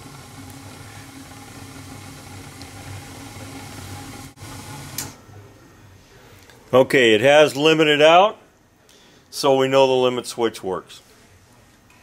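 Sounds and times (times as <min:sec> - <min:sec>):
gas burners hissing: 0:00.0 - 0:05.5.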